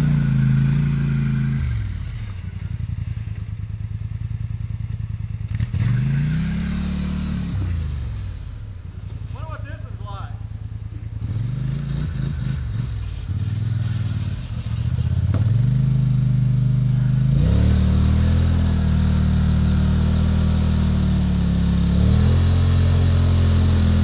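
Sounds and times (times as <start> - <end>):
atv engine revving: 0.0 - 24.0
wheels spinning in mud: 4.8 - 24.0.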